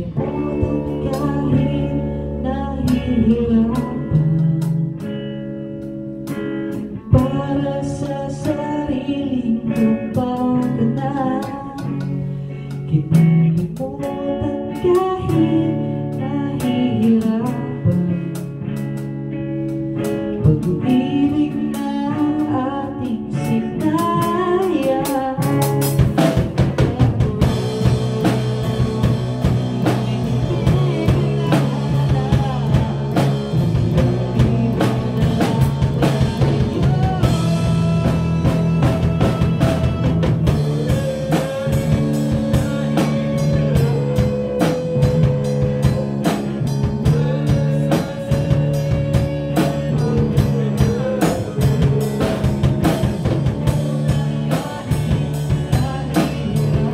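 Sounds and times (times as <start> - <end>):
man singing: 0.0 - 5.2, 6.7 - 18.6, 20.3 - 56.9
live band playing: 0.0 - 56.9
drum beat: 25.5 - 56.9.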